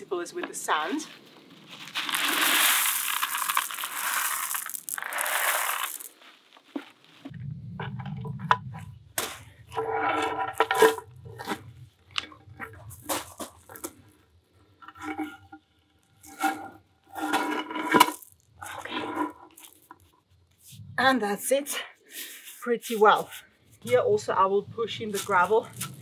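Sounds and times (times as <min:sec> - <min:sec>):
gravel crunching: 0:00.2 - 0:21.4, 0:22.2 - 0:26.0
stone slab scraping on gravel: 0:00.6 - 0:07.3, 0:08.4 - 0:20.8, 0:22.3 - 0:26.0
small stones clicking: 0:01.8 - 0:06.2, 0:12.1 - 0:14.2, 0:17.3 - 0:20.1.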